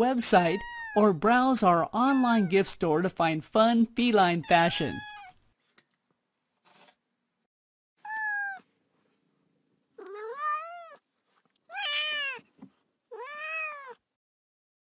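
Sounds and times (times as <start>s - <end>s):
cat meowing: 0.5s - 1.0s, 4.8s - 5.4s, 8.0s - 8.7s, 10.0s - 11.0s, 11.7s - 12.4s, 13.1s - 14.0s.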